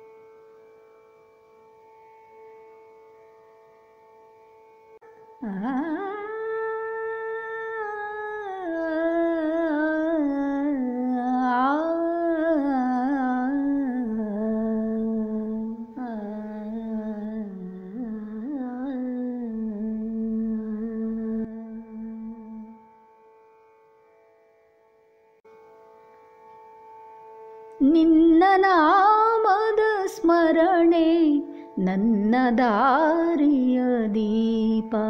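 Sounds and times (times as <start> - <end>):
woman humming a melody: 5.4 - 22.8.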